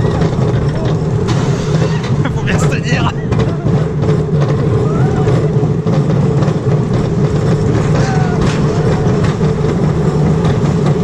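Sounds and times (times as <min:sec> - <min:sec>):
roller coaster wheels rumbling: 0:00.0 - 0:11.0.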